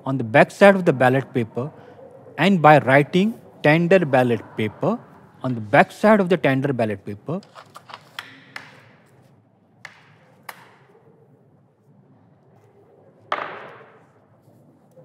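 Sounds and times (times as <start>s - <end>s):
paper handling: 7.4s - 9.3s.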